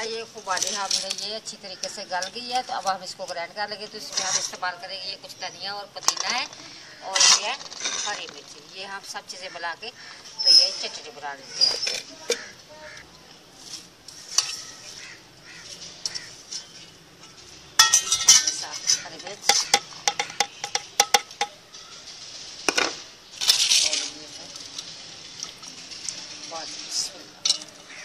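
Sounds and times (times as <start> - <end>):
scraping on a plate: 6.1 - 8.4
crockery and metal clinking: 14.2 - 15.2, 15.8 - 28.0.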